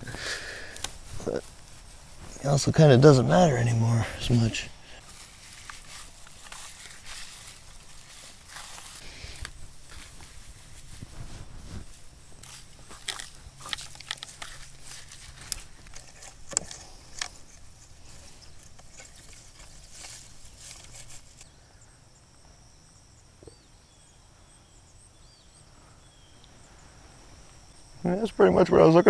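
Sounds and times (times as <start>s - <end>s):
pine boughs rustling and crackling: 0.0s - 21.6s
faint insect buzz: 0.0s - 29.0s
twigs snapping: 0.6s - 1.7s, 5.0s - 10.3s, 12.4s - 21.5s
small high chirps: 16.8s - 28.1s.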